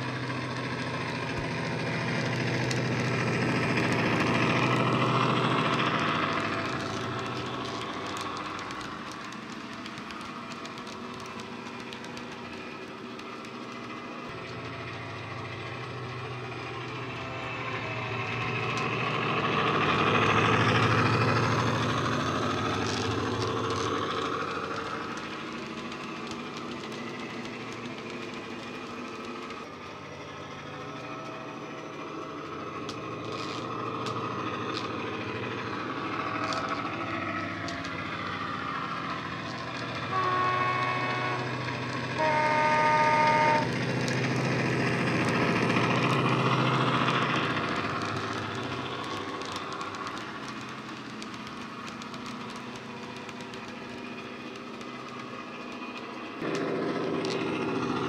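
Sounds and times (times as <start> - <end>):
diesel locomotive engine running: 0.0 - 58.0
locomotive horn blasts: 40.1 - 43.8.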